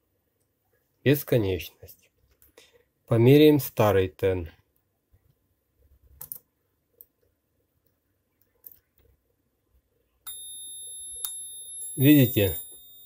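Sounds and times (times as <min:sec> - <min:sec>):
multimeter continuity beep: 0:10.3 - 0:13.0.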